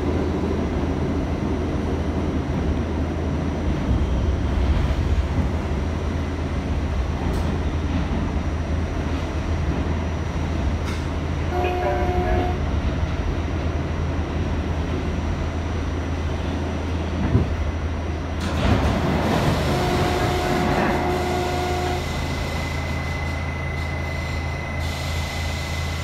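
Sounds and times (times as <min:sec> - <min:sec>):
subway train rumble: 0:00.0 - 0:26.0
high brake whine: 0:19.5 - 0:26.0.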